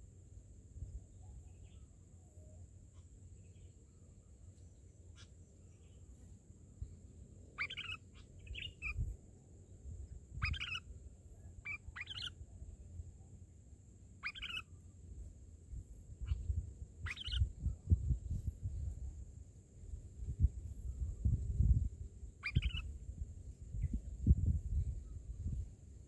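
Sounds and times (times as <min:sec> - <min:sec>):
chirping bird calls: 0:07.5 - 0:09.1, 0:10.4 - 0:10.9, 0:11.6 - 0:12.4, 0:14.2 - 0:14.7, 0:16.2 - 0:17.6, 0:22.4 - 0:22.9
low rumble: 0:15.3 - 0:22.3.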